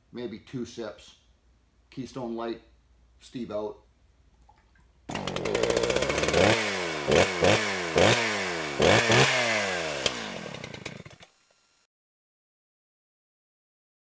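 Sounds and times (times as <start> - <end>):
chainsaw engine revving: 5.1 - 11.9.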